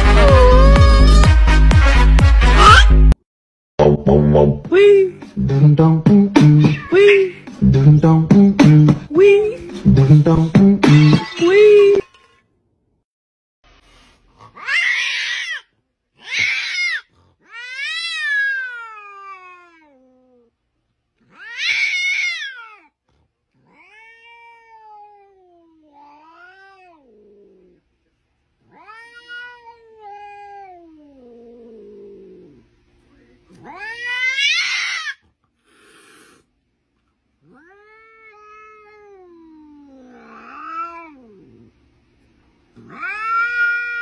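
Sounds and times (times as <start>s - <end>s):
cat meowing: 0.0s - 1.3s, 6.6s - 7.3s, 23.6s - 27.2s, 28.7s - 31.4s, 33.6s - 36.4s, 37.5s - 41.5s, 42.8s - 44.0s.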